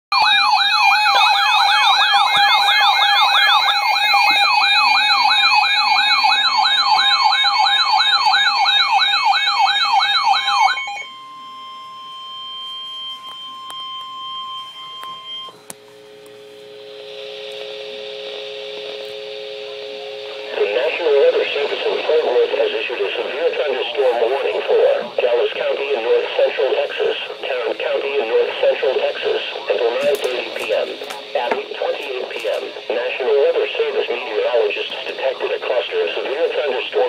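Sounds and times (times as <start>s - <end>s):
wailing alarm siren: 0.1s - 15.7s
quiet steady tones: 10.8s - 37.0s.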